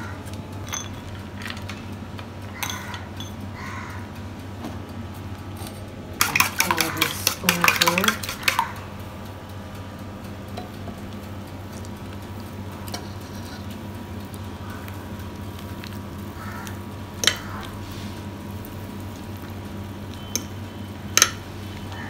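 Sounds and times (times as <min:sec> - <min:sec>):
whisking in metal bowl: 0:06.2 - 0:08.8.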